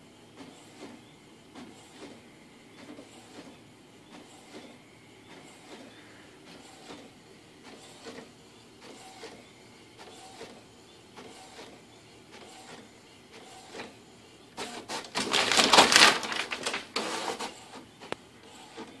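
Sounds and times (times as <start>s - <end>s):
printer carriage whirring: 0.0s - 19.0s
paper and mechanism clatter: 14.7s - 17.6s.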